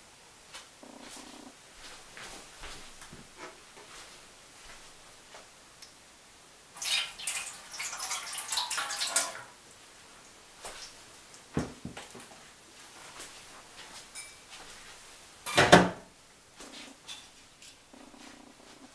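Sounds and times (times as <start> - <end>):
water pouring and splashing: 6.8 - 9.6.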